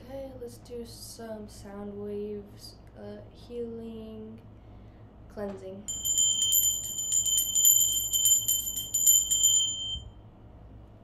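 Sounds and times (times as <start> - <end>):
small metal bell rung rapidly: 5.9 - 10.1.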